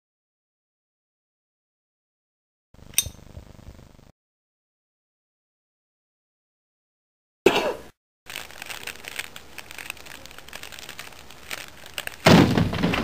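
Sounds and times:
person coughing: 0:07.5 - 0:07.9
small fire crackling: 0:08.3 - 0:13.0.

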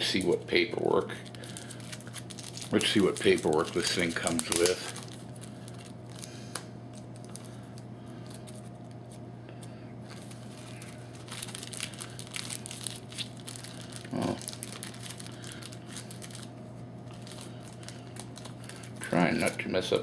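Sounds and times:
plastic bag crinkling: 0:00.0 - 0:09.2, 0:10.0 - 0:20.0
steady low hum: 0:00.0 - 0:20.0
tape peeling: 0:10.0 - 0:16.5.

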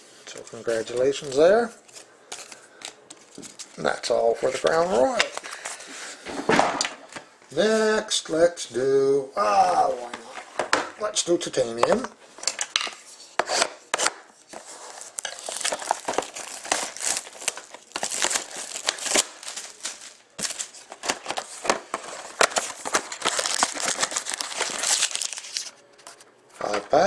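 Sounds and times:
plastic wrap tearing and crinkling: 0:14.0 - 0:25.8.

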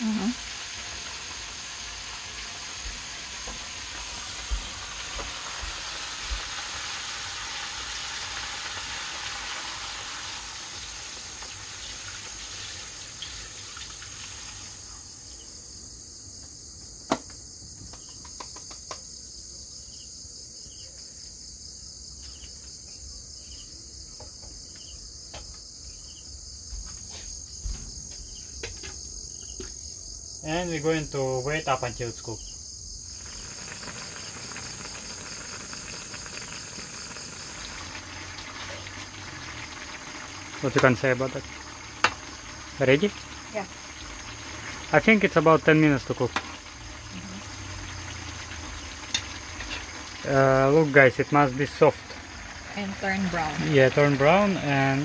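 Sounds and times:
food sizzling in hot oil: 0:00.0 - 0:15.6, 0:28.6 - 0:55.0
crickets chirring: 0:00.0 - 0:55.0
utensils clinking on pan: 0:49.1 - 0:50.0.

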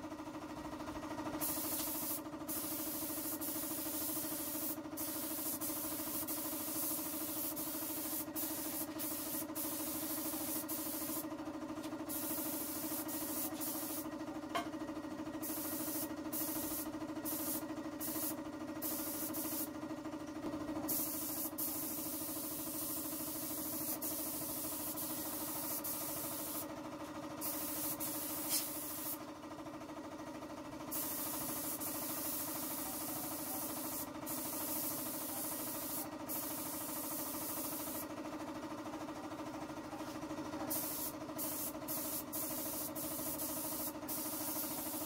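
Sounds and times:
paint spray gun hissing: 0:01.4 - 0:11.3, 0:12.0 - 0:14.1, 0:15.4 - 0:19.7, 0:20.9 - 0:26.7, 0:27.4 - 0:29.2, 0:30.9 - 0:38.1, 0:40.7 - 0:45.0.

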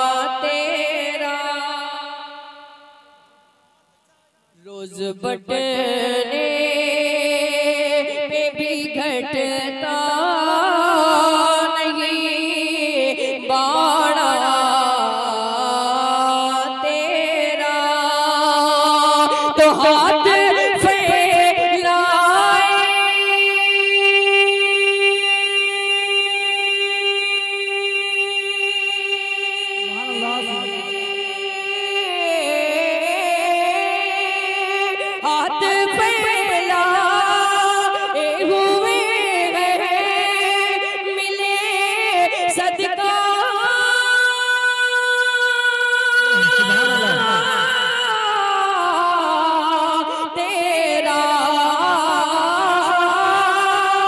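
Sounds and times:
man singing wordless melody: 0:04.5 - 0:54.0
steadily held drone note: 0:29.6 - 0:32.4, 0:45.8 - 0:48.1.

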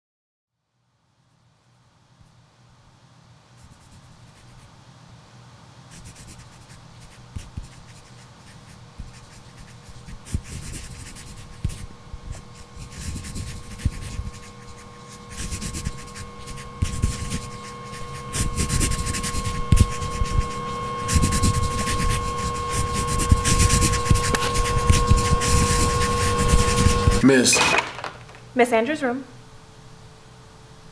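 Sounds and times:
steady hum: 0:00.7 - 0:30.9
pencils scratching on paper: 0:03.6 - 0:04.7, 0:05.9 - 0:27.5.

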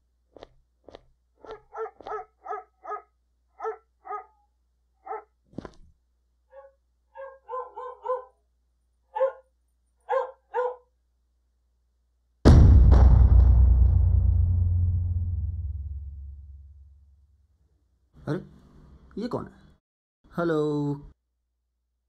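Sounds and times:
dog barking: 0:01.4 - 0:04.4, 0:05.0 - 0:05.4, 0:06.5 - 0:08.4, 0:09.1 - 0:10.9.

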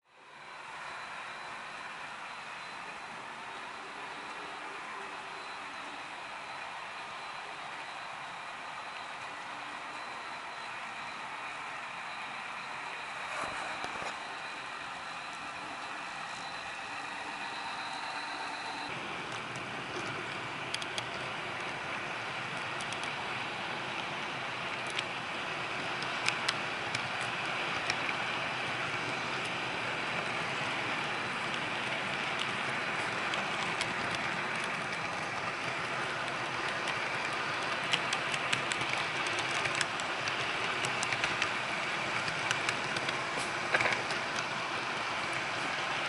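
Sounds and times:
model train wheels whirring: 0:00.2 - 0:46.0
sharp clicks of train cars: 0:31.4 - 0:45.8.

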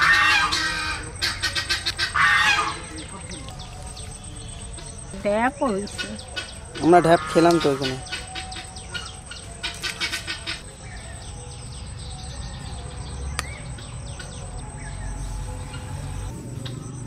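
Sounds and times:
bird chirp: 0:00.0 - 0:17.0
insects chirping: 0:00.0 - 0:17.0.

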